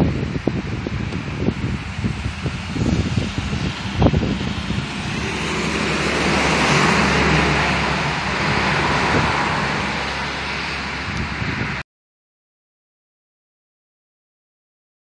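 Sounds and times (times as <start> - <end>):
wind buffeting microphone: 0.0 - 11.8
car passing: 1.5 - 11.8.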